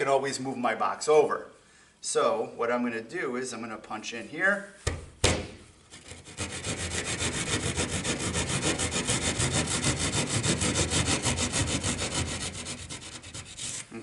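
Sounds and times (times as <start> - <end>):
hand saw cutting drywall: 5.9 - 14.0.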